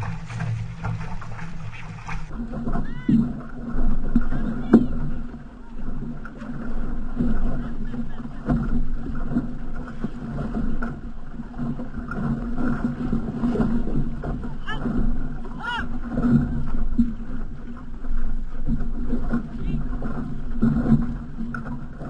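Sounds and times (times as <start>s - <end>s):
water splashing along canoe hull: 0.0s - 22.0s.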